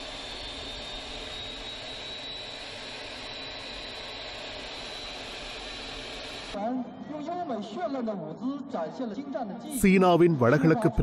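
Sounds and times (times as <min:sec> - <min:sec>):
jet engine and air rush: 0:00.0 - 0:06.6
thin high whine: 0:00.0 - 0:06.6.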